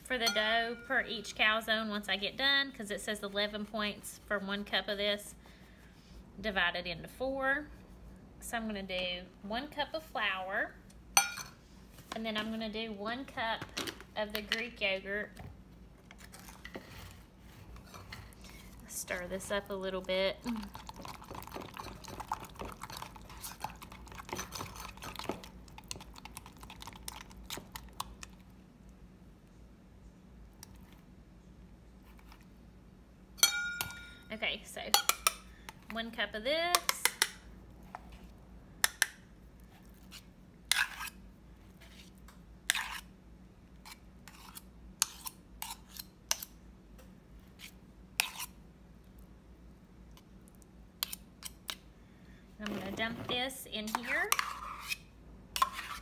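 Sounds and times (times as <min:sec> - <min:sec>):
spoon scraping plastic tub: 0:52.6 - 0:55.0, 0:55.6 - 0:56.0.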